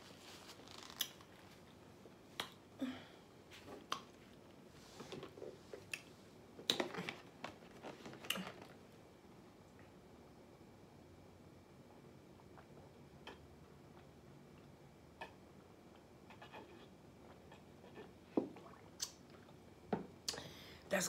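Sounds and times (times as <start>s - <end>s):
wet mouth smacks chewing: 19.0s - 19.5s.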